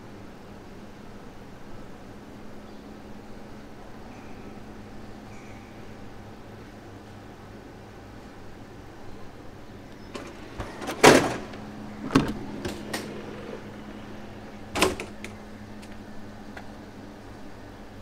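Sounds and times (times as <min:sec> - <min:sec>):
low steady hum: 0:00.0 - 0:18.0
train door clunks and knocks: 0:10.1 - 0:15.4.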